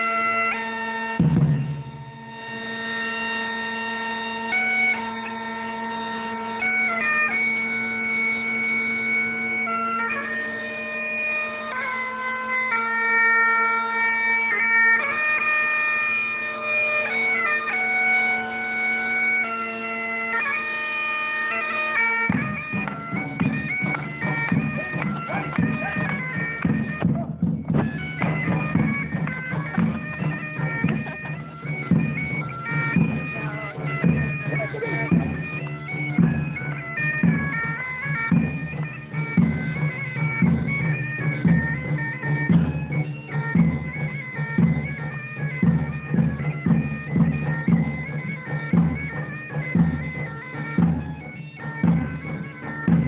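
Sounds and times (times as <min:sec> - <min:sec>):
bagpipes playing: 0:00.0 - 0:53.0
steady low drum beat: 0:22.3 - 0:53.0.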